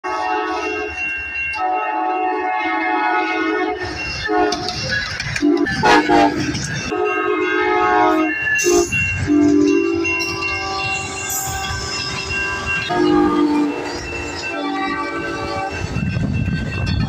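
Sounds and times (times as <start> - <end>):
locomotive horn blasts: 0.0 - 1.0, 1.6 - 4.7, 5.4 - 12.0, 12.8 - 13.9, 14.5 - 15.9
train rumbling on rails: 0.0 - 17.0.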